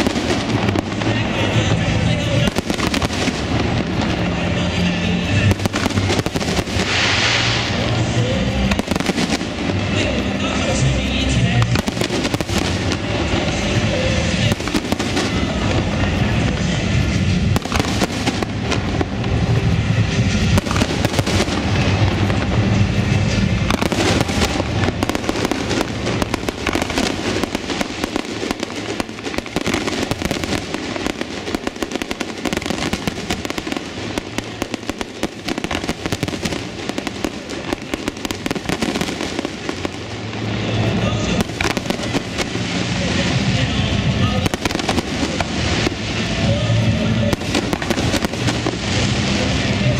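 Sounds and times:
firework crackling: 0:00.0 - 0:49.9
firework shells bursting: 0:05.5 - 0:08.0, 0:23.7 - 0:40.5.

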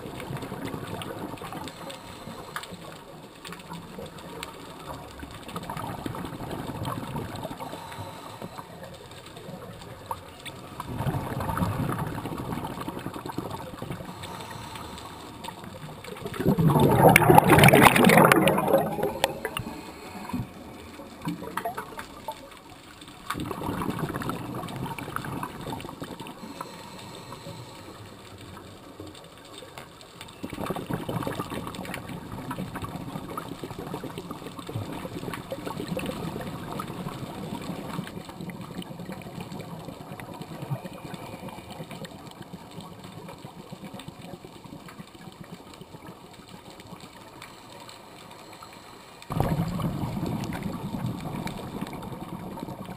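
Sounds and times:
low underwater hiss: 0:00.0 - 0:52.9
air bubbling underwater: 0:10.8 - 0:14.3, 0:16.2 - 0:20.6, 0:23.4 - 0:26.5, 0:49.3 - 0:52.9.

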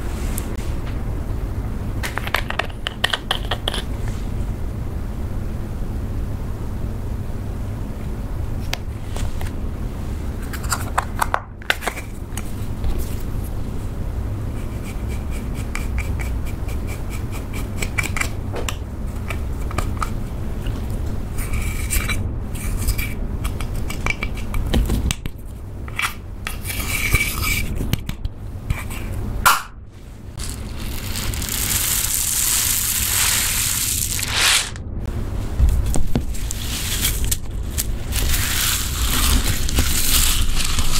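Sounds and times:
spatula scraping powder eyeshadow: 0:14.5 - 0:18.2, 0:30.3 - 0:34.8, 0:36.4 - 0:40.9
foam beads pouring: 0:30.4 - 0:34.8, 0:36.5 - 0:40.9.

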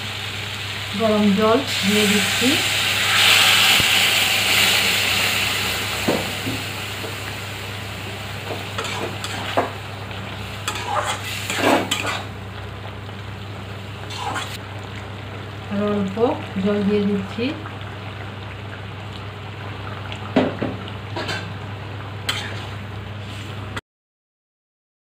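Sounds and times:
curry sizzling in a pan: 0:00.0 - 0:23.7
metal spatula scraping a pan: 0:08.8 - 0:09.6, 0:10.6 - 0:12.3, 0:22.3 - 0:22.7.

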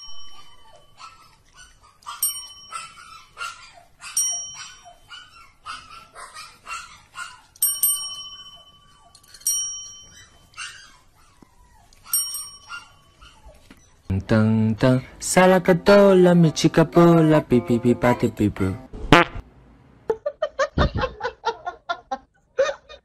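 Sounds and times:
desk bells dinging: 0:00.0 - 0:01.0, 0:02.1 - 0:03.2, 0:07.6 - 0:10.6, 0:12.1 - 0:13.2.

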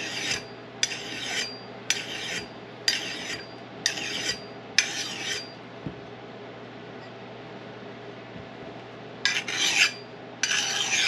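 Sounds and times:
sharpener scraping steel edge: 0:00.0 - 0:05.5, 0:09.3 - 0:11.0.

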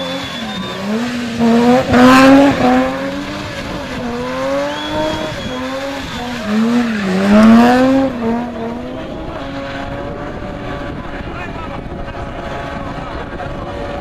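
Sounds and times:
tyre screeching: 0:00.0 - 0:08.2
car engine revving: 0:00.0 - 0:14.0.

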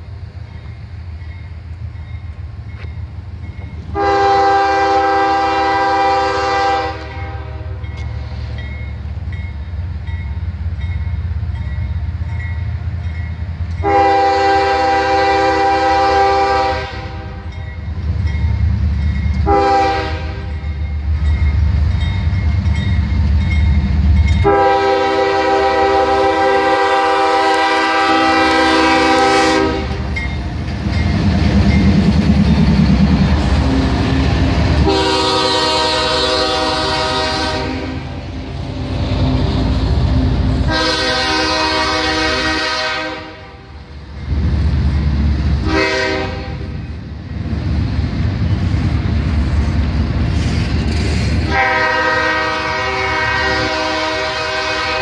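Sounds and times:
locomotive engines rumbling: 0:00.0 - 0:55.0
train air horn: 0:03.9 - 0:07.8, 0:13.8 - 0:17.5, 0:19.4 - 0:20.6, 0:24.4 - 0:30.2, 0:34.8 - 0:38.2, 0:40.6 - 0:43.8, 0:45.6 - 0:46.8, 0:51.4 - 0:55.0.

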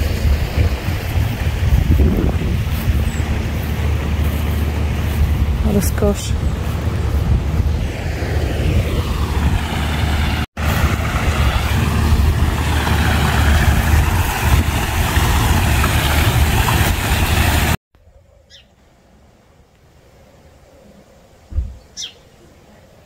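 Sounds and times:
wind buffeting microphone: 0:00.0 - 0:17.8
stream and waterfall rushing: 0:07.8 - 0:17.8
faint bird chirp: 0:18.0 - 0:18.8, 0:20.2 - 0:23.0.

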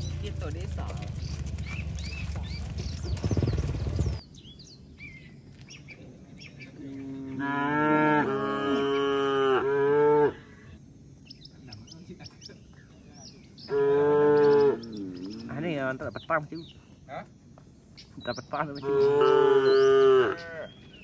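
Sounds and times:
birds chirping: 0:00.0 - 0:21.0
cow mooing: 0:06.8 - 0:10.6, 0:13.7 - 0:15.6, 0:18.8 - 0:20.7.

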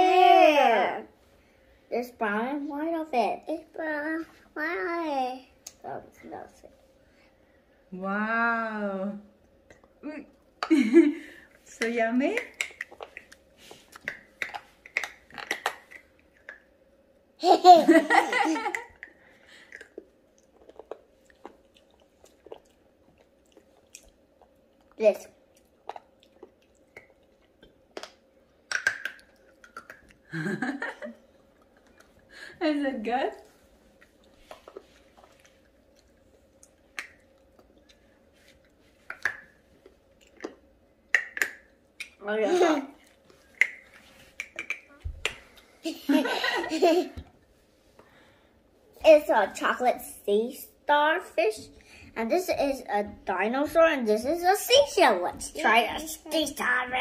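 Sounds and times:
mouth smacks: 0:12.4 - 0:16.7, 0:25.6 - 0:30.3, 0:39.0 - 0:42.2, 0:43.4 - 0:45.6
giggling laughter: 0:45.9 - 0:47.2.

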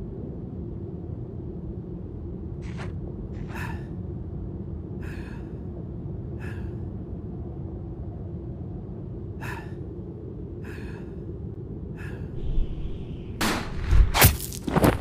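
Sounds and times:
low rumble: 0:00.0 - 0:15.0
person gasping for breath: 0:09.4 - 0:09.9, 0:10.6 - 0:11.3.

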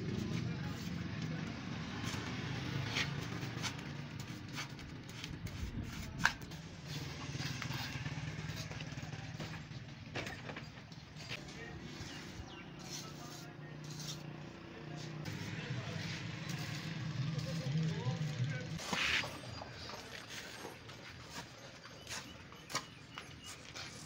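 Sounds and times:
low engine-like hum: 0:00.0 - 0:20.3
trowel scraping wet mortar: 0:12.0 - 0:14.3.

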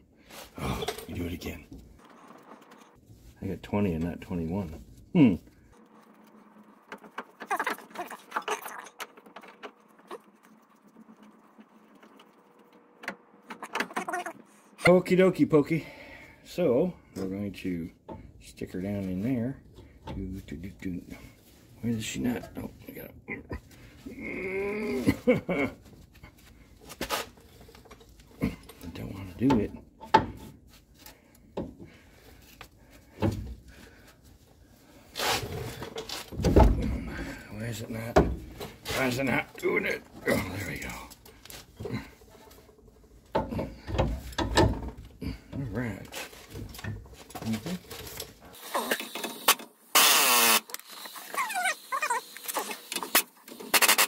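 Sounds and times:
light metal knocks and clunks: 0:27.5 - 0:30.7, 0:31.4 - 0:32.0, 0:33.1 - 0:33.8, 0:35.8 - 0:38.9, 0:41.2 - 0:48.4.

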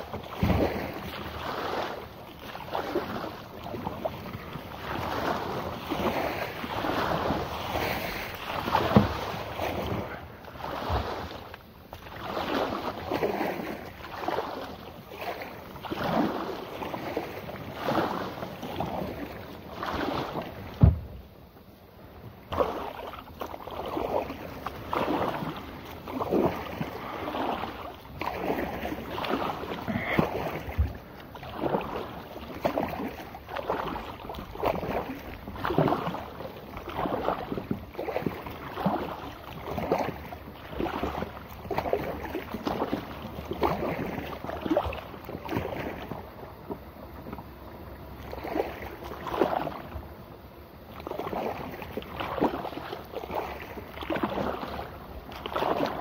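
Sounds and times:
kayak paddle splashing: 0:00.0 - 0:56.0.

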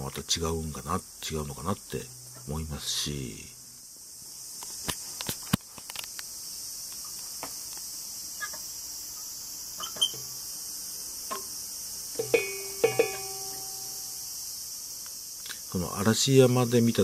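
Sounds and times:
insects chirping chorus: 0:00.0 - 0:17.0
faint ticks: 0:15.0 - 0:15.7.

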